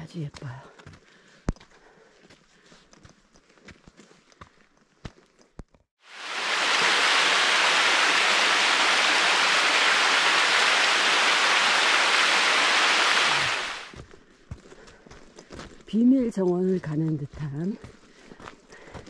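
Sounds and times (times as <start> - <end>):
running water rushing: 6.0 - 13.9.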